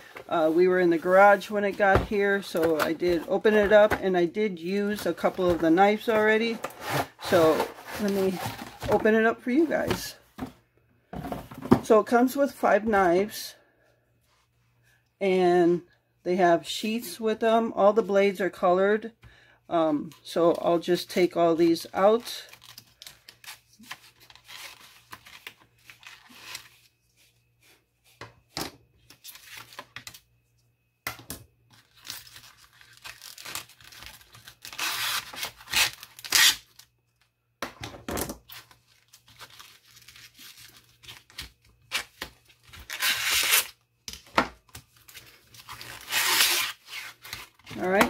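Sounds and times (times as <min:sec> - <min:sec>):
cardboard and plastic scraping: 0:00.0 - 0:04.2, 0:04.8 - 0:10.6.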